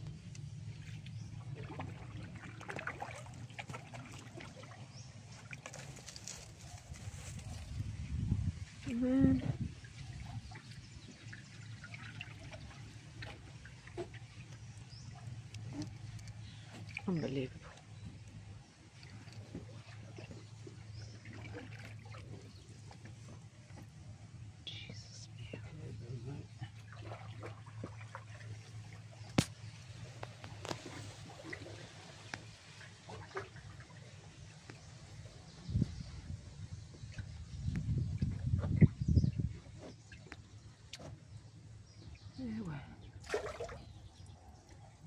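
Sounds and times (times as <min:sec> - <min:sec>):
small drips and ticks: 0:00.0 - 0:07.8, 0:09.8 - 0:24.0, 0:24.6 - 0:35.5, 0:39.5 - 0:42.4
water trickling and lapping: 0:00.0 - 0:45.0.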